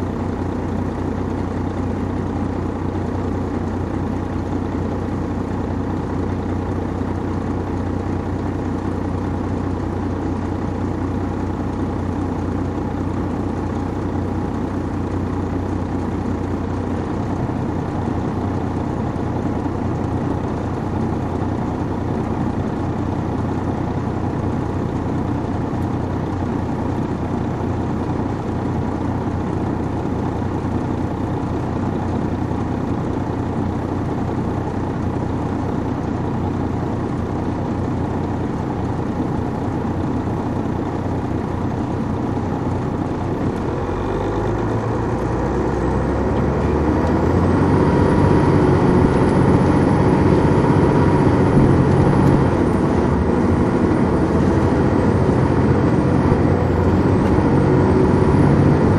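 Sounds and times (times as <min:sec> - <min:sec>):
diesel engine running: 0:00.0 - 0:58.9.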